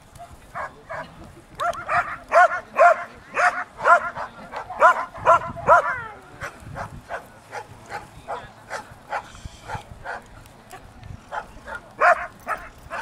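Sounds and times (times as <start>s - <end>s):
dog barking: 1.6s - 10.2s, 11.3s - 13.0s.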